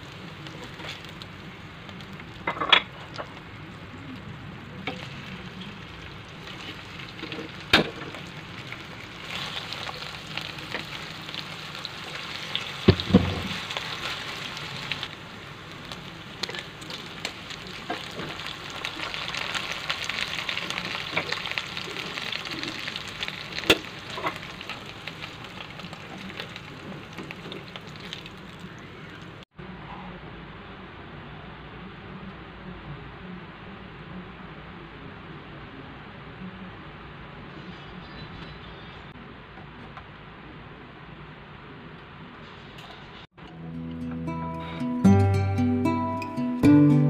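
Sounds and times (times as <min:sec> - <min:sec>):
meat sizzling in hot oil: 0:04.2 - 0:29.3.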